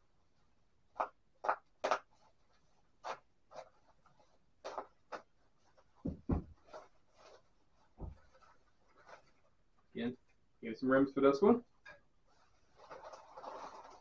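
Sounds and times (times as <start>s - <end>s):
dull thumps: 6.0s - 6.8s, 8.0s - 8.4s
bubble wrap crinkling: 12.3s - 14.0s.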